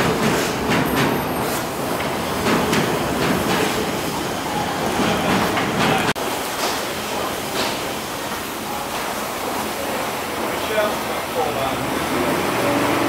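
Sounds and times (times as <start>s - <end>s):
train rumbling and clattering: 0.0s - 4.1s, 4.8s - 6.7s.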